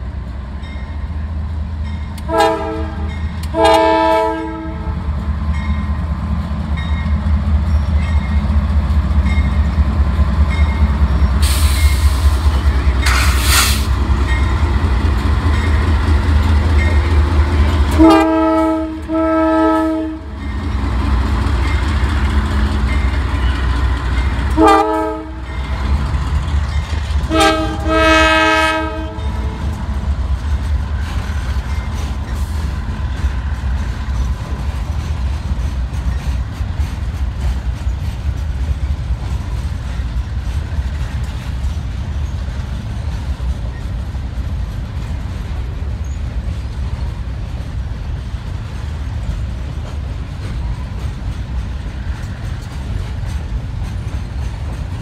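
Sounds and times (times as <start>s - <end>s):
train trailers rolling past: 0.0s - 55.0s
locomotive air horn blasts: 2.3s - 5.0s, 17.9s - 20.3s, 24.5s - 25.5s, 27.3s - 29.6s.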